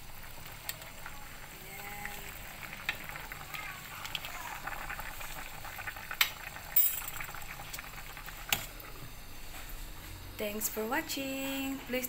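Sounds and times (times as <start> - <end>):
soup boiling and bubbling: 0.0 - 12.0.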